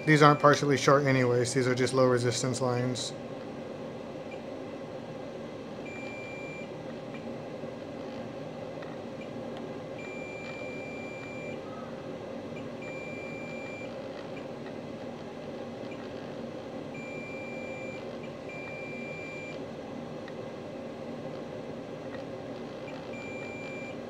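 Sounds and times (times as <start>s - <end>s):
multimeter high beeps: 0.0s - 0.6s, 5.8s - 6.7s, 10.0s - 11.6s, 12.8s - 14.0s, 17.0s - 19.6s, 23.1s - 24.0s
steady background hum: 0.0s - 24.0s.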